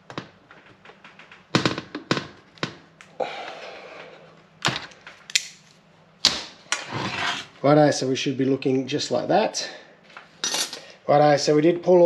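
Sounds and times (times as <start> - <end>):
metal scraping rasp: 6.8 - 7.6.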